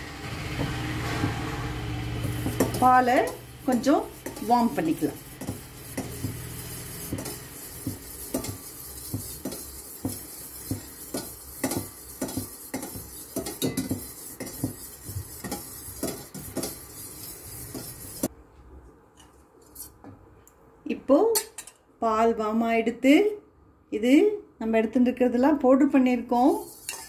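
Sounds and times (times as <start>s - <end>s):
metal spoon scraping steel bowl: 2.2s - 18.3s, 26.4s - 27.0s.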